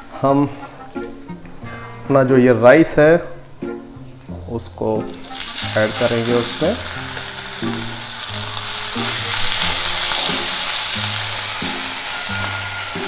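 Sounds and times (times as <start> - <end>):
background music low notes: 0.0 - 13.0
rice sizzling in hot oil: 5.0 - 13.0.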